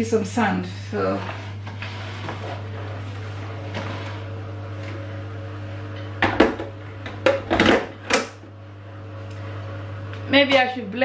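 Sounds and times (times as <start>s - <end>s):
low hum: 0.7s - 11.0s.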